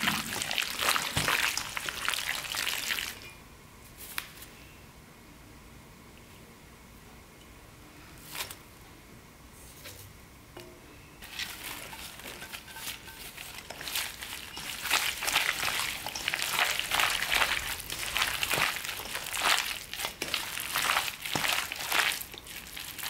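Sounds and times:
wet crackly mixing of food: 0:00.0 - 0:03.3, 0:11.2 - 0:23.0.

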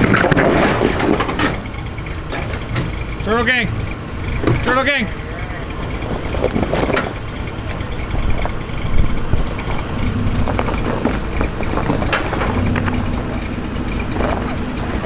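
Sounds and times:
truck engine running low: 0:00.0 - 0:15.0
truck knocking and scraping rocks: 0:00.0 - 0:15.0
tyres crunching over rock: 0:08.3 - 0:15.0.

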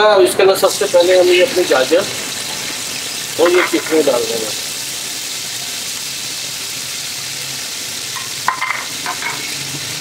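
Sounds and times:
food sizzling in hot oil: 0:00.0 - 0:10.0
spoon clinking against pot: 0:08.2 - 0:09.5.

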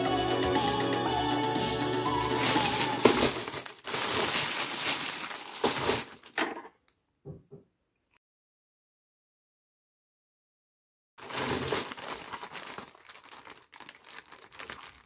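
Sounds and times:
background music: 0:00.0 - 0:03.6
plastic bag crinkling: 0:02.1 - 0:06.7, 0:11.2 - 0:15.0.

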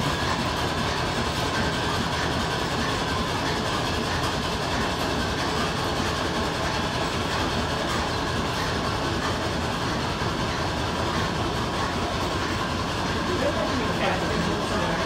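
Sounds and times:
line-shaft machinery rattling: 0:00.0 - 0:15.0.

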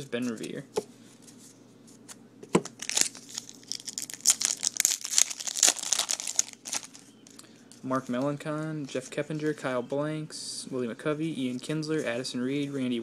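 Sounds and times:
foil wrapper crinkling and tearing: 0:02.7 - 0:07.1.

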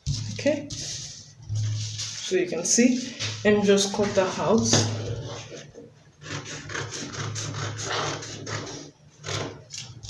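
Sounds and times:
scissors snipping paper: 0:06.3 - 0:10.0.

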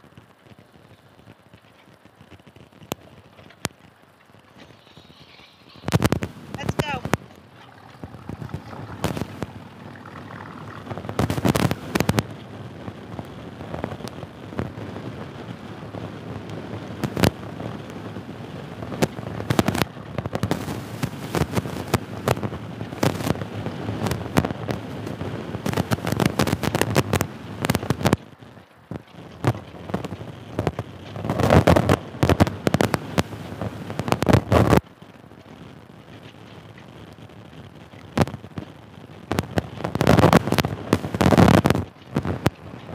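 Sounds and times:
raindrops hitting microphone: 0:00.0 - 0:42.9
road noise: 0:00.0 - 0:42.9
wind rushing: 0:04.4 - 0:28.2.

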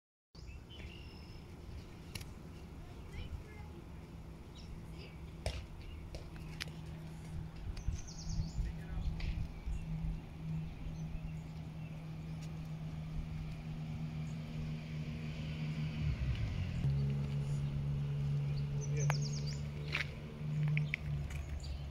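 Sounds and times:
birds chirping: 0:00.4 - 0:21.9
steady low hum: 0:00.5 - 0:21.9
low rumble: 0:01.0 - 0:21.9.

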